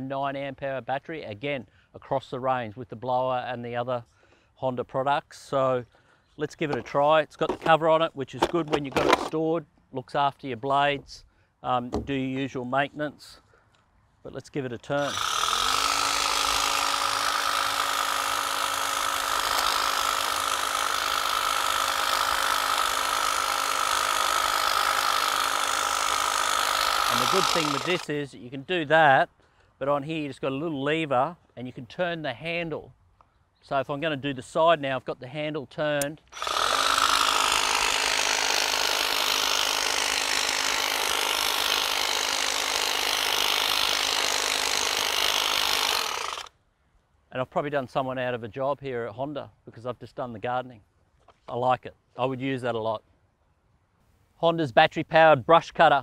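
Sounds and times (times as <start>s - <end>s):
hedge trimmer cutting foliage: 8.4s - 9.3s, 14.9s - 28.2s, 36.0s - 46.5s.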